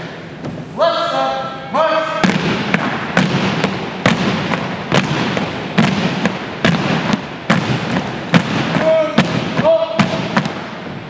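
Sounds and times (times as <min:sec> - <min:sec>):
marching feet stamping wooden floor: 0:02.2 - 0:10.6.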